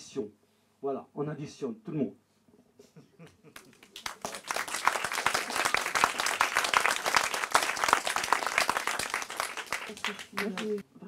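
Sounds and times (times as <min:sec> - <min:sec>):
audience applauding: 0:03.5 - 0:10.8.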